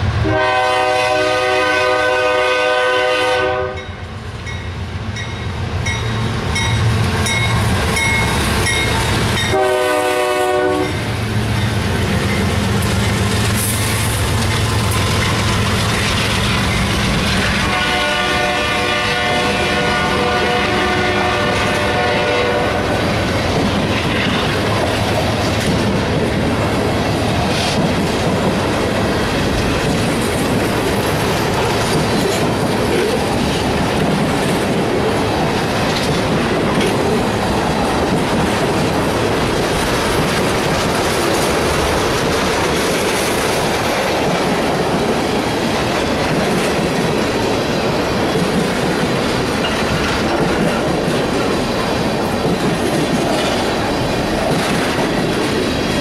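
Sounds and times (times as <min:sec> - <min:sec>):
locomotive horn: 0:00.2 - 0:04.0, 0:09.5 - 0:11.0, 0:17.5 - 0:23.1
train wheels clattering on rails: 0:04.4 - 0:56.0.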